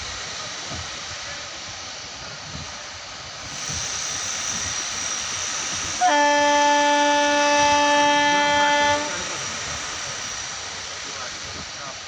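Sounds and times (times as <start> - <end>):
train coaches rolling on rails: 0.0 - 12.0
train horn: 6.0 - 9.6.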